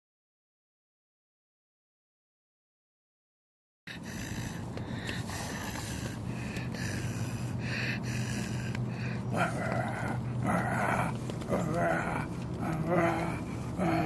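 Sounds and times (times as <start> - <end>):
dog snuffling and snorting: 3.9 - 14.0.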